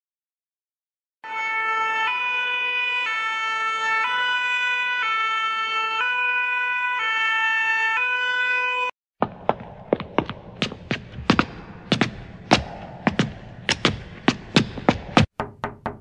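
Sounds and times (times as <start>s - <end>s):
two-tone fire engine siren: 1.2s - 9.0s.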